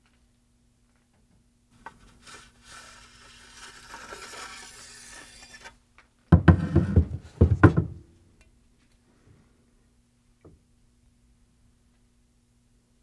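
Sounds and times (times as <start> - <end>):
blade sliding out of scabbard: 2.2 - 5.8.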